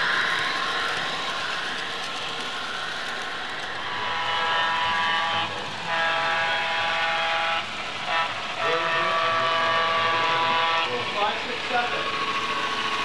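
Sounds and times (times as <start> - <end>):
steady hiss: 0.0 - 13.0
model train chime horn: 4.0 - 11.0.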